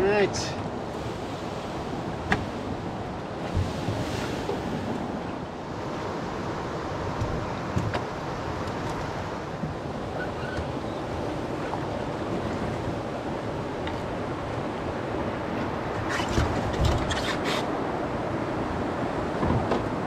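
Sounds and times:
river water rushing over rapids: 0:00.0 - 0:10.6
knocks in a canoe: 0:19.4 - 0:20.0.

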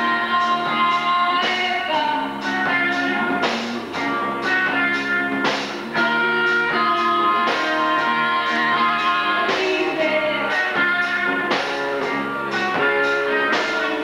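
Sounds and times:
woman singing into a microphone: 0:00.0 - 0:03.4, 0:06.0 - 0:11.5, 0:12.8 - 0:14.0
rock band playing: 0:00.0 - 0:14.0.

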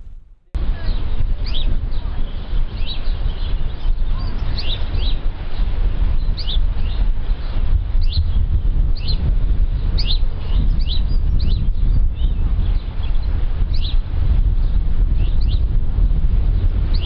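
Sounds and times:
loud low rumble: 0:00.0 - 0:02.1.

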